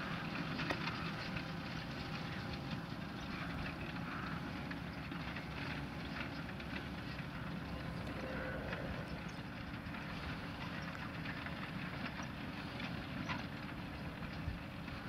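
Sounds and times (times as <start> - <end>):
tractor engine rumbling: 0.0 - 15.0
bird calls: 7.6 - 9.6.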